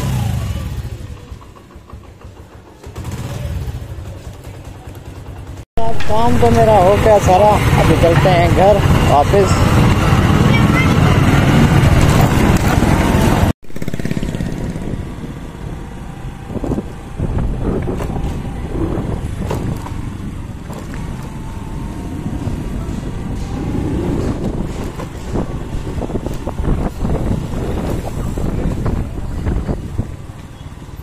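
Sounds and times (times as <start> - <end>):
motorcycle engine running: 0.0 - 31.0
wind noise on microphone: 6.5 - 31.0.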